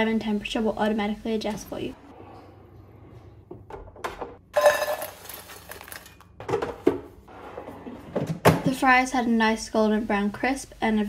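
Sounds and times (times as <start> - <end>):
fries clattering into metal bowl: 4.5 - 7.0.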